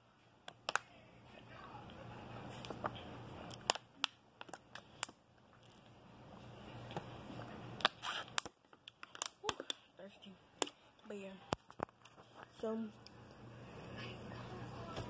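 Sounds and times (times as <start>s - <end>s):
faint low hum: 0.0s - 7.9s, 8.6s - 15.0s
plastic bottle clicks and crackles: 3.5s - 5.8s, 7.8s - 9.8s.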